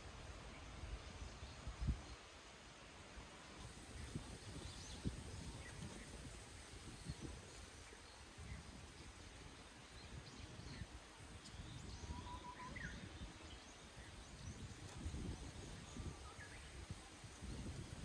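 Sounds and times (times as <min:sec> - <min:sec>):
wind rumble on microphone: 0:00.0 - 0:02.2, 0:03.5 - 0:18.0
faint bird chirps: 0:09.9 - 0:17.8.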